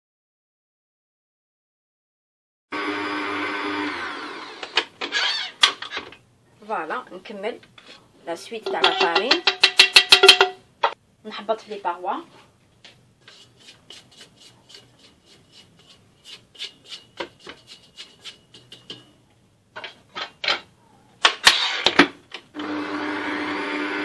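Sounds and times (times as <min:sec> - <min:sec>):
spoon scraping steel mixer bowl: 0:07.8 - 0:10.5, 0:13.2 - 0:20.4
mixer head clacking onto bowl: 0:08.7 - 0:10.6
stand mixer motor humming: 0:22.6 - 0:24.0.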